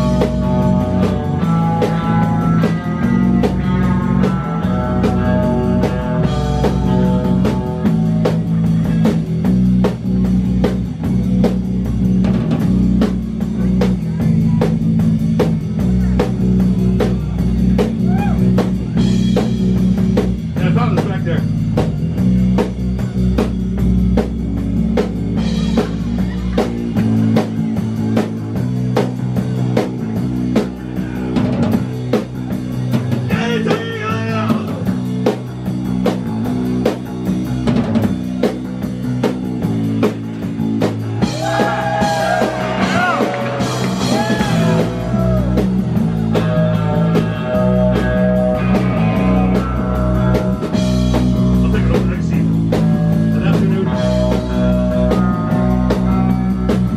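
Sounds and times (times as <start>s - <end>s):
drum kit beat: 0.0s - 56.9s
electric bass: 0.0s - 56.9s
electric guitar: 0.0s - 56.9s.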